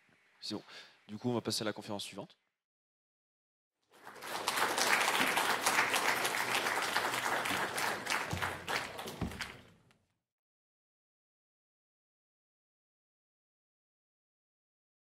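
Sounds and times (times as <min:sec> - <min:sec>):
audience applauding: 0:03.9 - 0:09.8.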